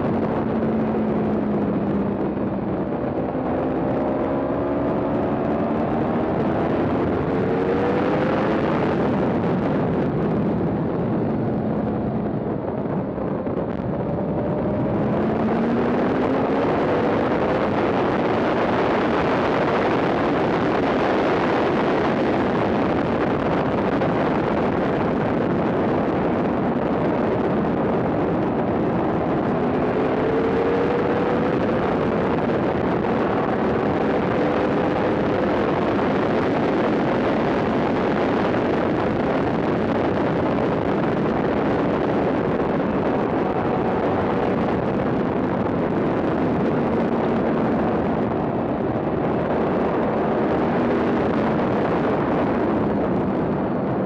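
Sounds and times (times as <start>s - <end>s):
motorcycle engine revving: 0.0s - 9.2s, 27.4s - 45.7s
wind rush on microphone: 0.0s - 54.0s.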